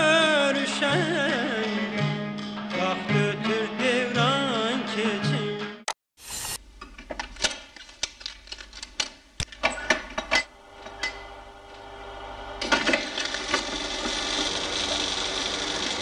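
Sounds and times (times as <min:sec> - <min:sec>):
projector motor whirring: 0:10.6 - 0:16.0
film projector clicks and clacks: 0:12.6 - 0:16.0.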